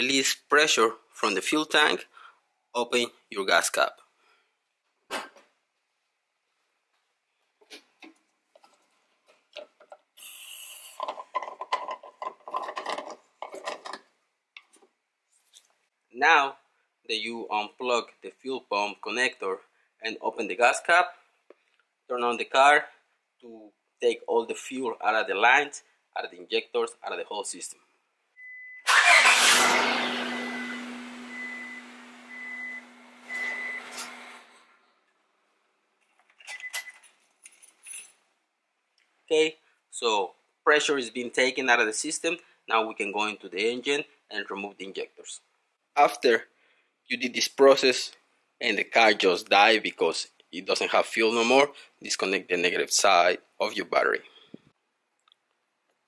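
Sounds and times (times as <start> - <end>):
fuel tank venting hiss: 10.2 - 11.0
car engine stumbling and dying: 28.9 - 34.6
high beep: 30.4 - 34.0.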